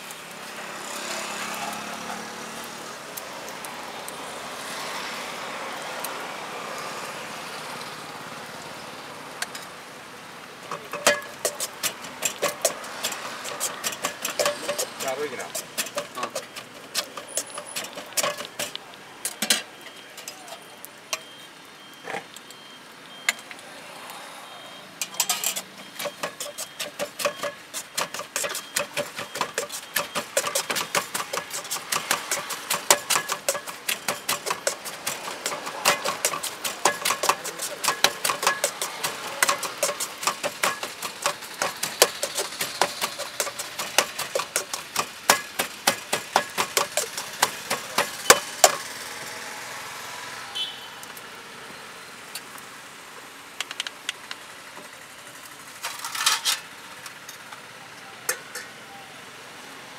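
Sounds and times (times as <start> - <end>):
metal utensils knocking in a wok: 10.7 - 20.4, 25.0 - 48.8.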